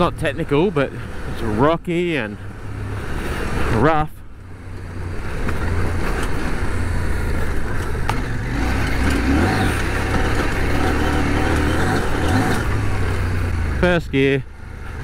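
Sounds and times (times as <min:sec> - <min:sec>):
ground and wind noise: 0:00.0 - 0:15.0
motorcycle engine running: 0:04.4 - 0:15.0.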